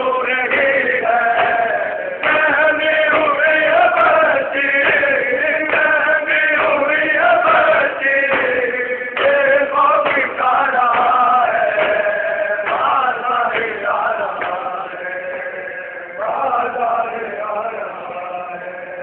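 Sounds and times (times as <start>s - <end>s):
men chanting in unison: 0.0s - 19.0s
chest-beating slaps: 0.3s - 15.0s.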